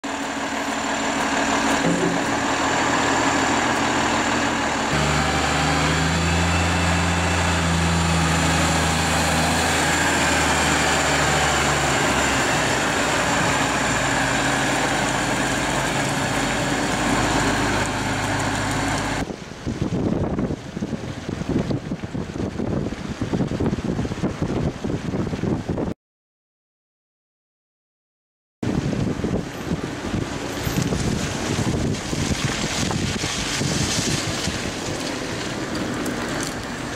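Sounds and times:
tractor diesel engine running: 0:00.0 - 0:19.4, 0:28.8 - 0:36.9
wind buffeting microphone: 0:05.9 - 0:26.0, 0:28.6 - 0:36.9.

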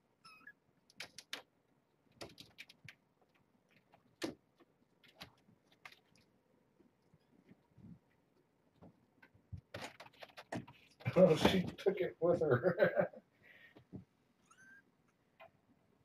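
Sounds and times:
kittens scuffling: 0:02.1 - 0:11.9.

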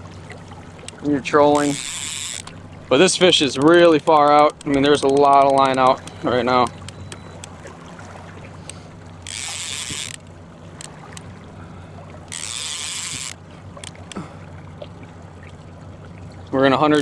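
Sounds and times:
boat engine hum: 0:00.0 - 0:17.0
fishing reel ratcheting: 0:00.8 - 0:07.5, 0:08.6 - 0:11.3, 0:12.2 - 0:14.2.

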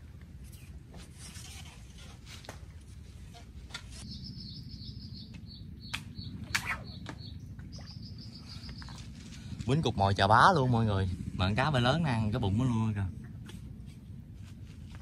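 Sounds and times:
low steady rumble: 0:00.0 - 0:15.0
high chirping call: 0:04.0 - 0:09.0.

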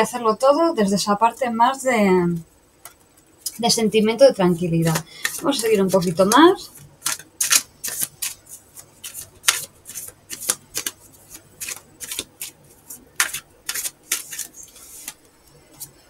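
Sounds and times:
cards being shuffled: 0:04.8 - 0:16.0.

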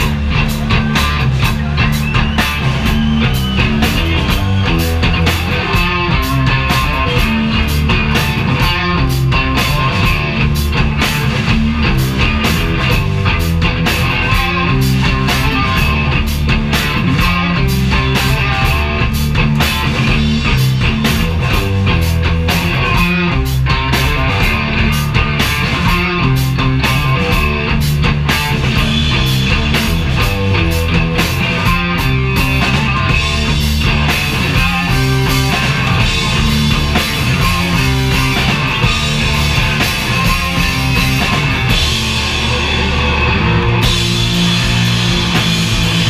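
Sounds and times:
bass guitar: 0:00.0 - 0:46.0
drum kit beat: 0:00.0 - 0:46.0
electric guitar: 0:00.0 - 0:46.0.

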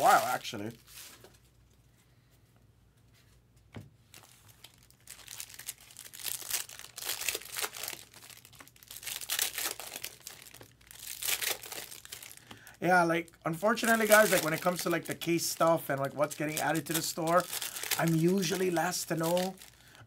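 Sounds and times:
wrapper crinkling and tearing: 0:00.0 - 0:01.4, 0:04.1 - 0:12.6, 0:13.3 - 0:20.0
cards rustling: 0:13.5 - 0:19.8.

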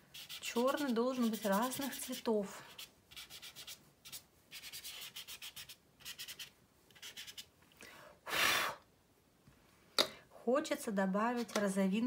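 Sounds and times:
brushing rustle: 0:00.1 - 0:07.5
pastel scratching on rough paper: 0:00.1 - 0:07.5.

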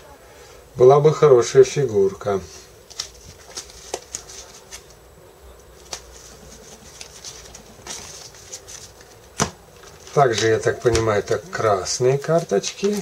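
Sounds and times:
cards rustling: 0:02.8 - 0:05.0, 0:05.6 - 0:13.0
cards clicking: 0:02.9 - 0:05.0, 0:05.6 - 0:11.5, 0:12.1 - 0:13.0.

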